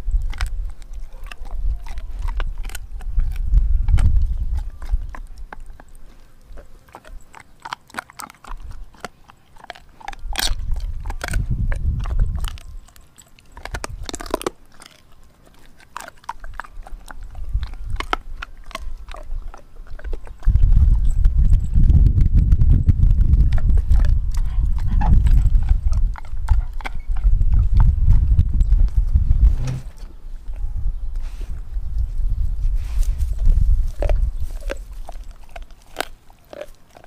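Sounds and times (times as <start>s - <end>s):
dog crunching on frozen bone: 0.0s - 29.2s, 32.8s - 37.0s
low rumble: 20.5s - 31.0s.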